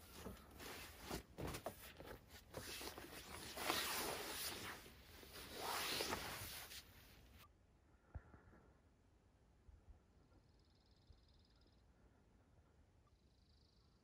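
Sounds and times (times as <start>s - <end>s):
fabric rustling and sliding: 0.0s - 7.4s.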